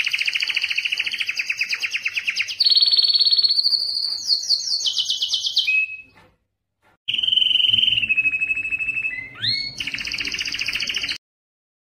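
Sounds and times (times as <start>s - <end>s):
canary singing trills: 0.0s - 6.2s, 7.1s - 11.2s.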